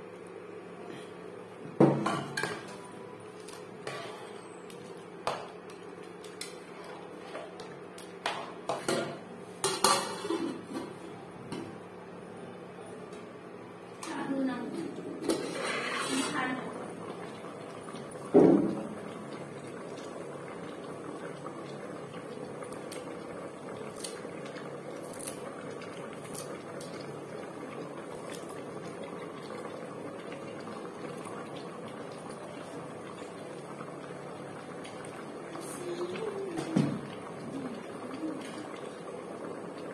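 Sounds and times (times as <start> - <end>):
soup bubbling in a pot: 0.0 - 11.6, 14.8 - 39.9
spoon scraping metal pot: 15.3 - 16.4.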